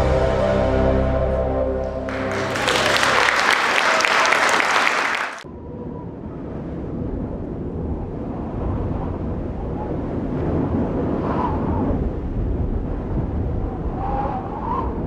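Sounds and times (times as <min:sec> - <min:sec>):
wind-like rumbling noise: 0:05.5 - 0:15.0.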